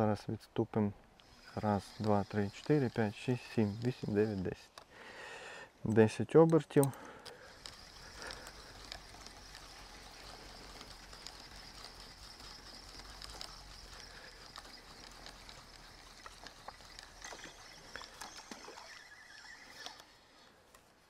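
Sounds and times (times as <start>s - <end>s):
high-pitched hiss: 1.3s - 5.6s
low hum: 7.4s - 20.2s.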